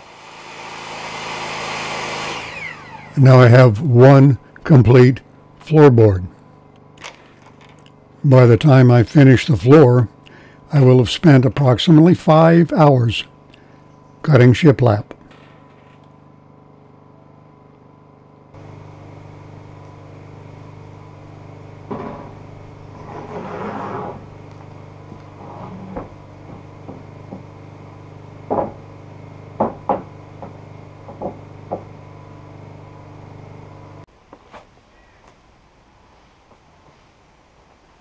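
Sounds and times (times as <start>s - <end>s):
steady low hum: 0.0s - 34.2s
wooden board scraping: 21.8s - 24.4s, 25.0s - 27.5s
sharp wooden knocks: 28.5s - 28.8s, 29.6s - 31.9s.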